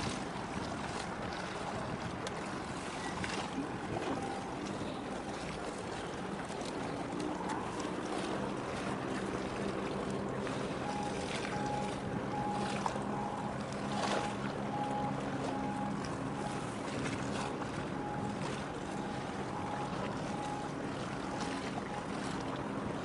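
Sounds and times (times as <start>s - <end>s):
wind on microphone: 0.0s - 7.8s
boat engine droning: 0.0s - 23.0s
choppy water splashing: 0.0s - 23.0s
short faint beep: 3.9s - 5.0s, 10.7s - 22.2s.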